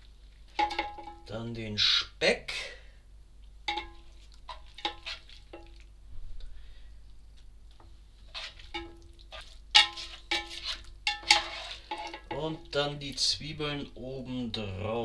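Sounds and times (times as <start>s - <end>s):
fat sizzling: 3.6s - 5.9s, 8.1s - 14.0s.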